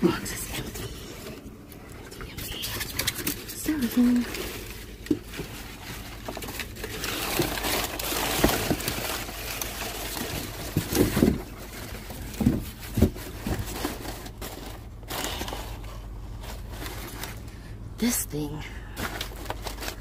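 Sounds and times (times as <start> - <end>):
packing paper crinkling: 0.5 - 17.7, 19.0 - 20.0
cardboard boxes shifting: 2.6 - 17.6, 19.0 - 20.0
dull knocks of boxes: 12.1 - 13.8.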